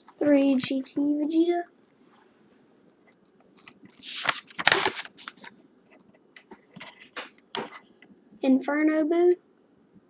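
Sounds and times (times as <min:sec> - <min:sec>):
light paper crinkles and taps: 0:03.5 - 0:07.8
paper pages rustling: 0:03.6 - 0:05.6.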